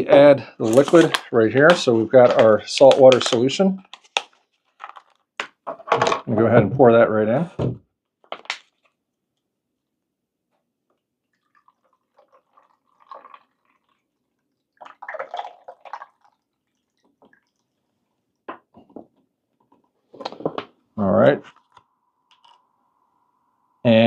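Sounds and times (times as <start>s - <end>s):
water pouring from plastic bag: 0.6s - 3.5s, 11.4s - 17.8s.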